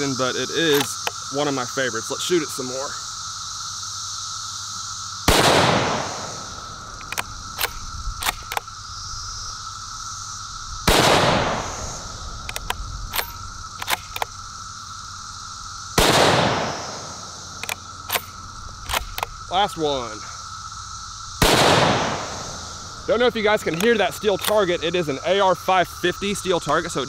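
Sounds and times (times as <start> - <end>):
rifle bolt metallic clicks: 0.7 - 1.2, 6.9 - 8.7, 12.4 - 14.3, 17.6 - 19.4, 23.7 - 24.6
rifle shots with echo: 5.3 - 6.7, 10.9 - 11.9, 16.0 - 17.2, 21.4 - 22.5.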